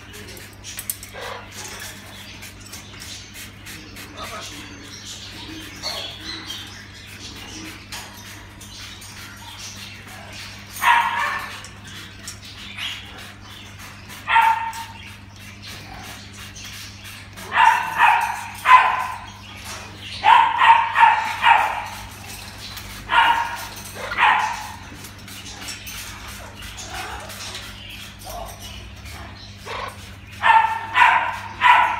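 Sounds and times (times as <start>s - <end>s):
parrot calling: 25.6s - 31.9s.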